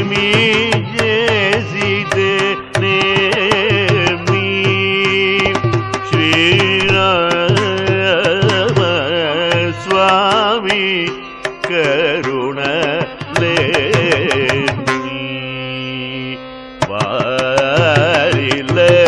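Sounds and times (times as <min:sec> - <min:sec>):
drum strokes: 0:00.0 - 0:14.9.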